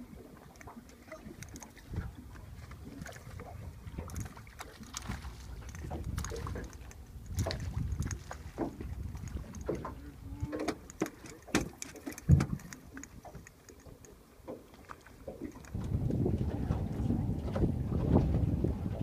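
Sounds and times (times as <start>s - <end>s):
wind rumble on microphone: 1.1s - 10.9s, 12.2s - 13.5s, 15.4s - 19.0s
knocks and thumps on boat deck: 7.4s - 12.6s, 15.8s - 19.0s.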